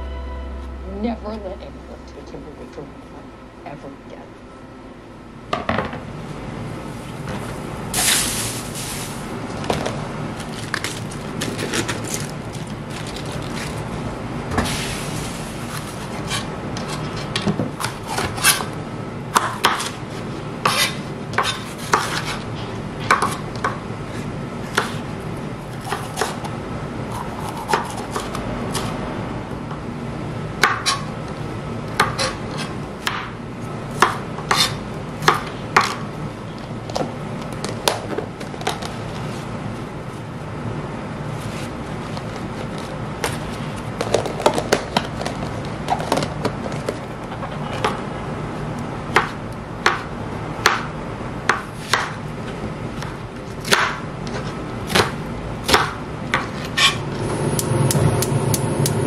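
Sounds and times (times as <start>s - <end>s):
steady low hum: 0.0s - 59.0s
knife chopping on cutting board: 20.6s - 22.4s, 24.7s - 25.0s, 25.7s - 26.5s, 34.0s - 36.0s, 49.1s - 50.9s, 51.5s - 52.2s, 53.6s - 54.0s.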